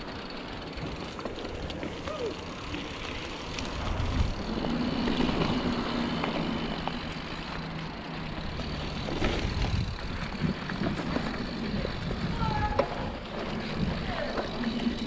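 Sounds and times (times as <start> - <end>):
bike rattling and ticking: 0.0 - 15.0
bike tyres rumbling on dirt: 0.0 - 15.0
wind rush on microphone: 3.7 - 4.7, 9.2 - 14.3.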